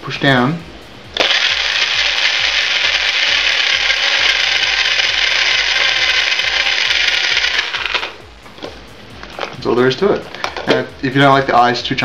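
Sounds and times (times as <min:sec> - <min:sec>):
blender crushing ice: 0:01.2 - 0:08.2.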